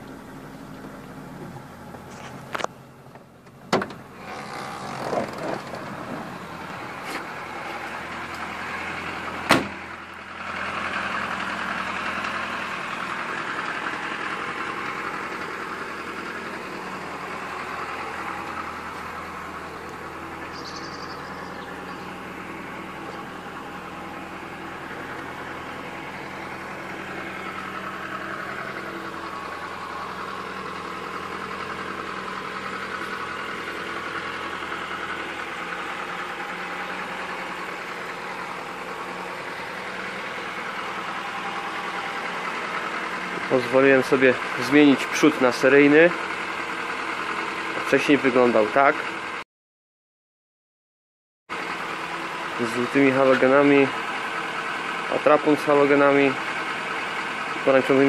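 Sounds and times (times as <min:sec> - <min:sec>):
car engine idling: 0:00.0 - 0:49.4, 0:51.5 - 0:58.0
car door thud: 0:03.7 - 0:04.0, 0:09.5 - 0:09.8.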